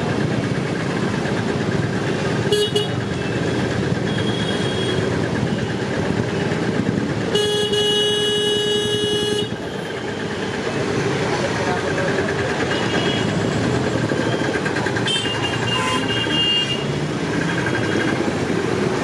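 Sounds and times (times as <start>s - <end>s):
road traffic passing: 0.0s - 19.0s
long vehicle horn blast: 7.3s - 9.6s
vehicle horn honking: 7.3s - 9.8s, 15.0s - 16.8s.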